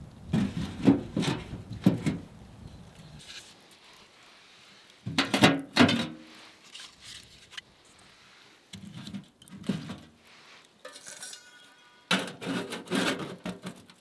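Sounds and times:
burning logs ticking: 0:01.5 - 0:05.8, 0:07.3 - 0:10.8
firewood knocking on metal stove: 0:05.1 - 0:06.2
short metallic ring: 0:10.9 - 0:12.0.

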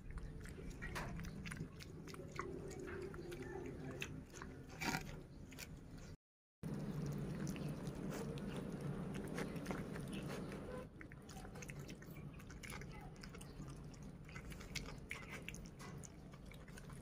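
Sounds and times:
wet chewing and smacking: 0:00.0 - 0:17.0
low steady hum: 0:06.6 - 0:15.4.

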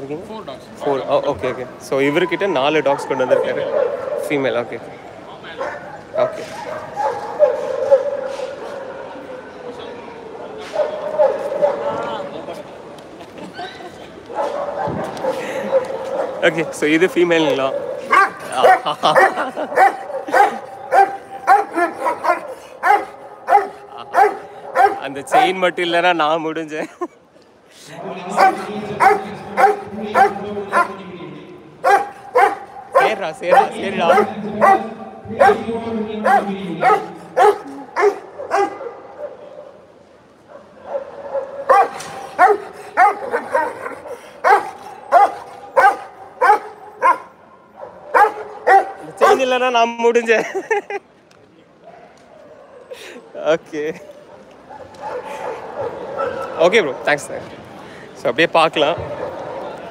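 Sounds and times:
dog barking aggressively: 0:02.9 - 0:04.4, 0:05.6 - 0:09.0, 0:10.7 - 0:12.0, 0:14.3 - 0:16.9, 0:17.6 - 0:25.6, 0:28.3 - 0:31.0, 0:31.8 - 0:39.4, 0:40.9 - 0:49.6.

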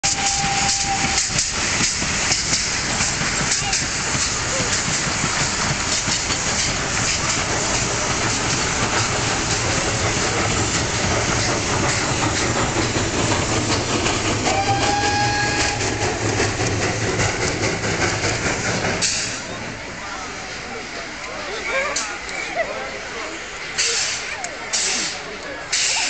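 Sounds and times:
locomotive whistle: 0:00.0 - 0:01.5, 0:14.4 - 0:16.2
train wheels clacking on rails: 0:00.0 - 0:19.8, 0:23.6 - 0:26.0
steam hissing: 0:00.0 - 0:21.0, 0:23.5 - 0:26.0.

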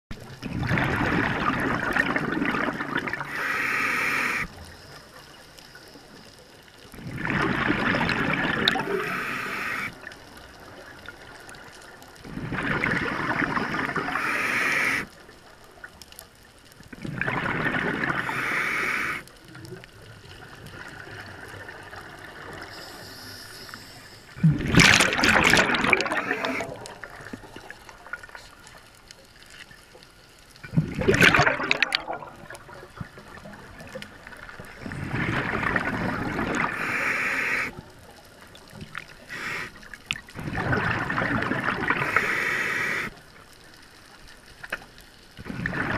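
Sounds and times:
exhaled bubbles underwater: 0:00.1 - 0:05.4, 0:06.8 - 0:15.9, 0:16.6 - 0:22.8, 0:24.3 - 0:28.9, 0:30.6 - 0:43.3, 0:45.3 - 0:45.9.

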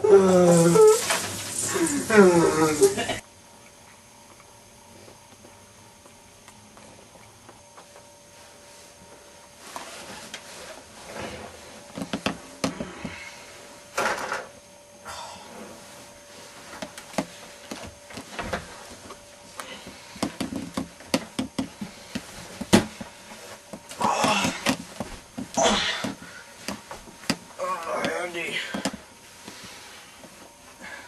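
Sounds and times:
knocks and clicks against wood: 0:20.2 - 0:22.9.

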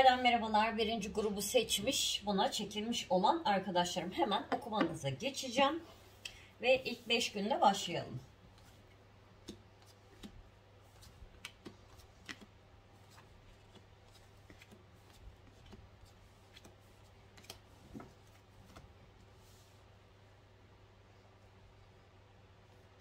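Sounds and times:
low steady hum: 0:00.0 - 0:23.0
cards tapping and sliding on table: 0:09.4 - 0:15.8.

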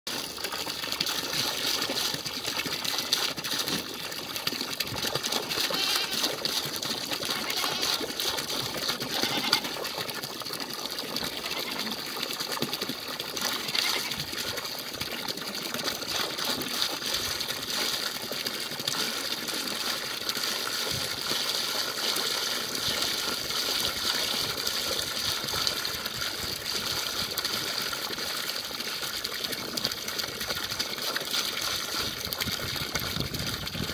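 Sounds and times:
water gushing into a plastic tub: 0:00.1 - 0:33.9.

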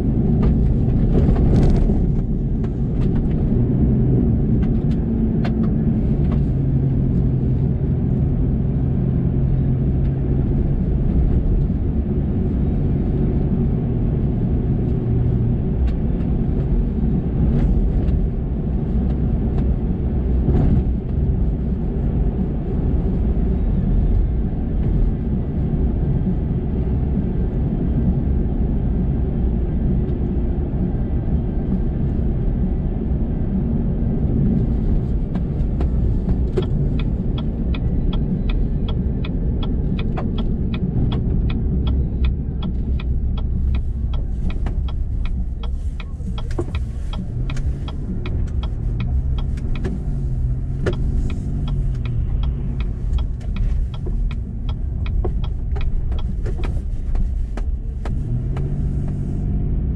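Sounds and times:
engine and tyre rumble: 0:00.0 - 0:59.9
engine hum: 0:00.0 - 0:59.9
faint ticks: 0:39.6 - 0:50.0.

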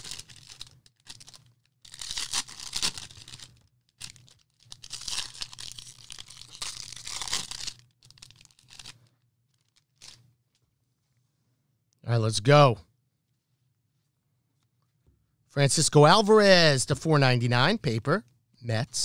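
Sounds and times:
wrappers tearing and crinkling: 0:00.0 - 0:10.2.

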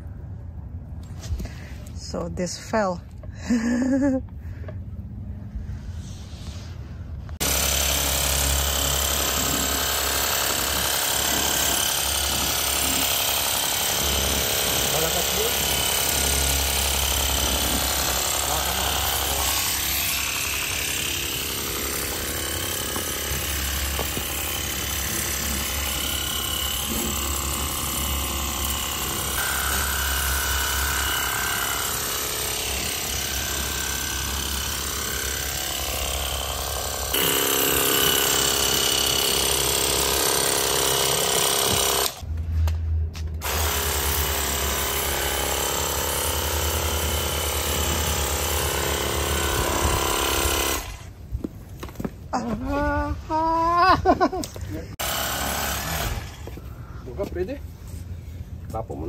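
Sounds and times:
electric pump motor buzzing: 0:07.4 - 0:42.2, 0:43.4 - 0:51.2, 0:55.0 - 0:56.5.

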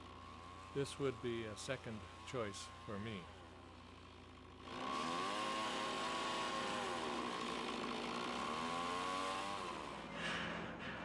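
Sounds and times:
chainsaw engine cutting: 0:04.6 - 0:10.8.

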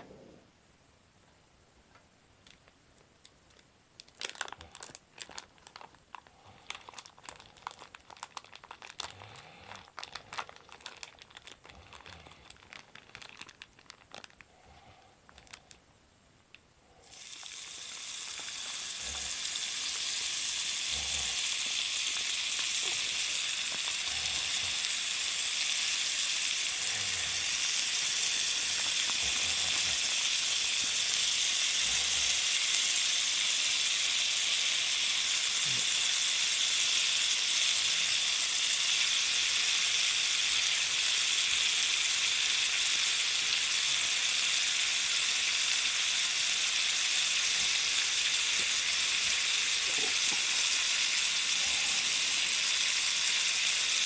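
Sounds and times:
plastic pouch crinkling: 0:02.4 - 0:14.5, 0:15.3 - 0:15.8, 0:21.6 - 0:31.7
food sizzling in skillet: 0:17.1 - 0:54.0.

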